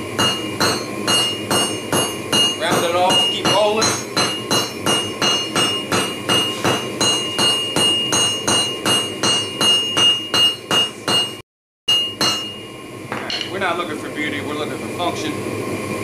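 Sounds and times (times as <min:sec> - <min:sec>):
hammer ringing on metal anvil: 0:00.2 - 0:12.6.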